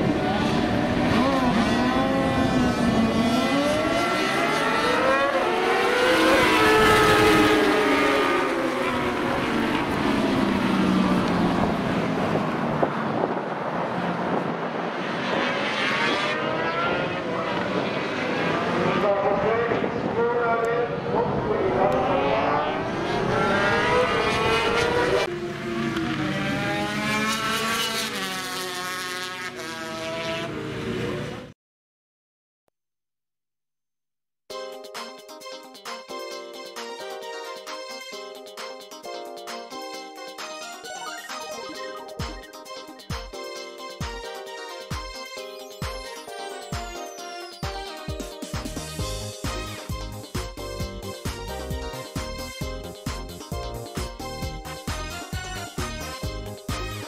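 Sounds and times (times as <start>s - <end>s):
racing motorcycles accelerating: 0.0s - 31.5s.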